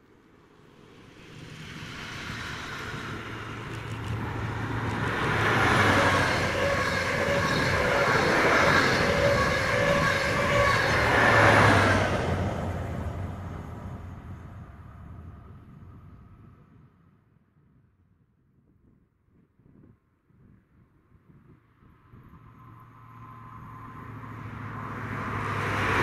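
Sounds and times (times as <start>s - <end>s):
low diesel engine hum: 0.0s - 16.8s, 22.4s - 26.0s
train wheels rushing on rails: 0.9s - 15.5s.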